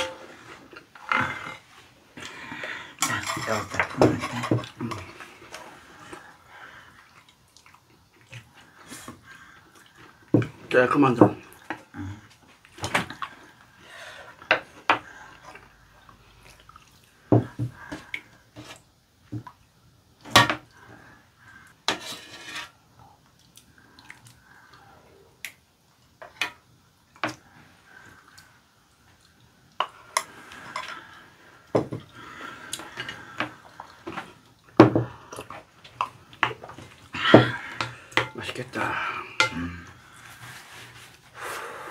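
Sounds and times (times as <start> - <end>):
quiet scraping: 21.9 - 22.8.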